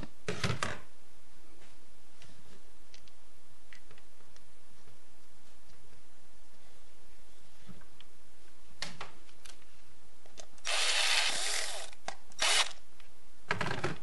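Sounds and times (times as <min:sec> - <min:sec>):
electric screwdriver driving screw: 0:10.6 - 0:12.8.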